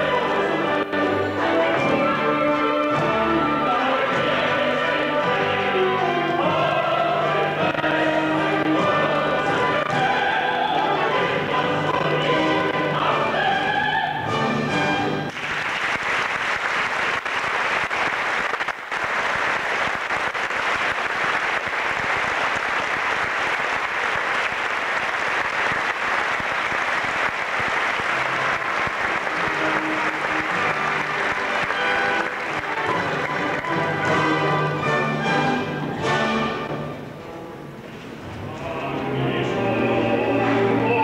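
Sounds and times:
orchestra playing: 0.0 - 15.6, 27.8 - 41.0
audience applauding: 15.3 - 34.8.

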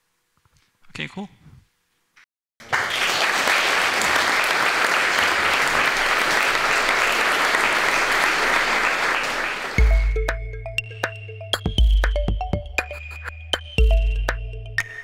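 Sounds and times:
audience applauding: 2.6 - 10.1.

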